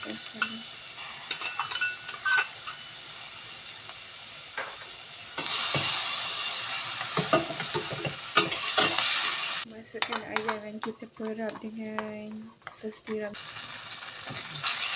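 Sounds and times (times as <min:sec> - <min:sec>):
vegetables sizzling in hot oil: 0:00.0 - 0:09.7, 0:13.3 - 0:14.9
metal spatula scraping a wok: 0:01.2 - 0:02.8.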